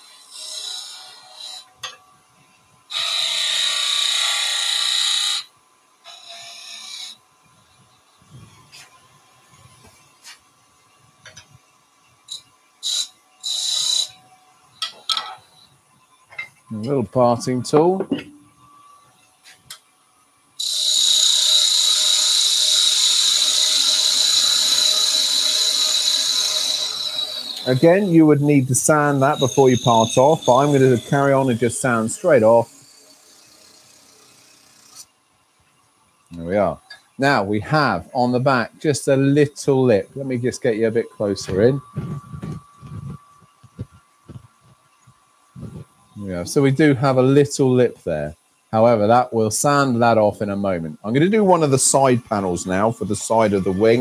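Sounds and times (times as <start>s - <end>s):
lathe tool cutting wood: 2.9s - 5.5s, 12.8s - 14.2s, 20.6s - 35.0s, 51.1s - 54.0s
chisel scraping spinning wood: 23.1s - 35.0s, 51.5s - 54.0s.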